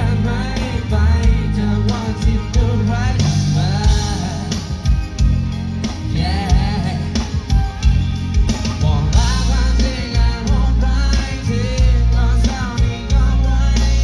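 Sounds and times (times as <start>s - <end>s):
drums: 0.0s - 14.0s
heavy bass: 0.0s - 14.0s
person singing: 6.1s - 7.5s.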